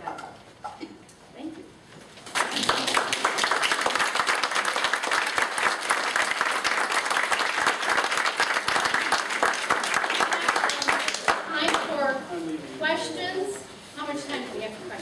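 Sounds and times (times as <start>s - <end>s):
audience applauding: 2.2s - 11.9s.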